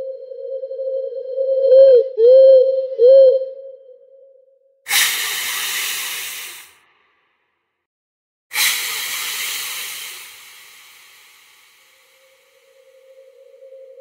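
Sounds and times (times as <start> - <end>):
loud hisses: 4.9 - 6.8, 8.5 - 13.4.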